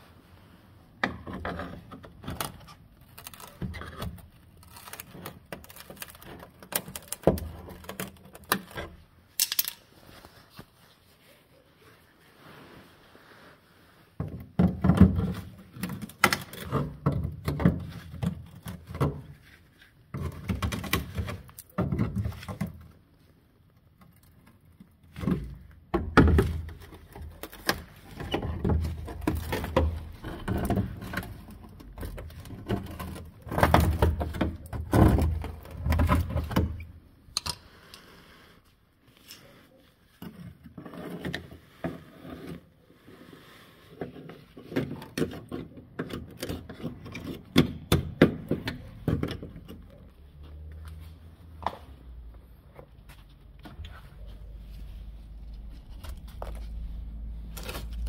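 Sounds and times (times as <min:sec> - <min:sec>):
rotten metal cracking and flaking: 0:02.3 - 0:08.9.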